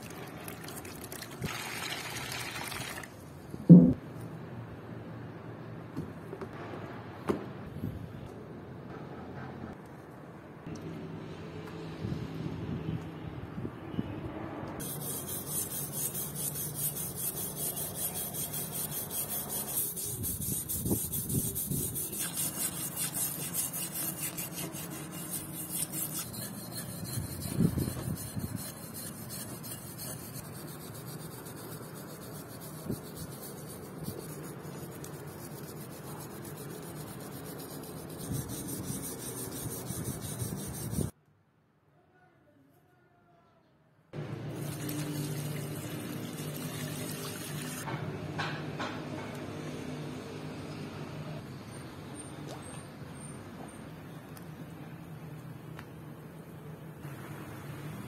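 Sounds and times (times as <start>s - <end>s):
metal blade scraping rust: 14.8s - 34.8s.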